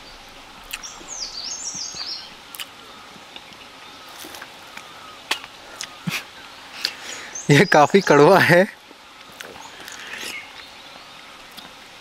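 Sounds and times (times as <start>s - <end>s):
songbird singing high notes: 0.0s - 2.4s, 7.0s - 8.4s
outdoor background noise: 0.0s - 12.0s.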